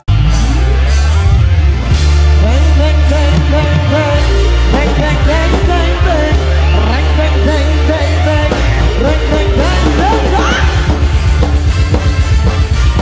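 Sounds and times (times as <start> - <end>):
bass guitar: 0.0 - 13.0
drum kit: 0.0 - 13.0
electric guitars: 0.0 - 13.0
person singing: 2.2 - 11.8.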